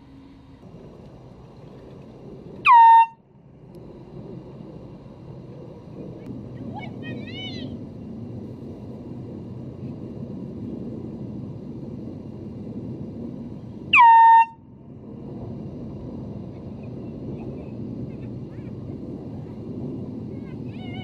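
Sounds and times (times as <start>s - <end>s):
air horn blast: 2.6s - 3.2s, 13.9s - 14.6s.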